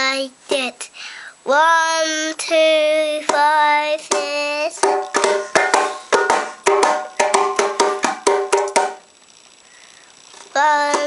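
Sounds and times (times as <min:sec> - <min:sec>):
child singing: 0:00.0 - 0:05.4, 0:10.5 - 0:11.0
djembe strokes: 0:04.8 - 0:09.0.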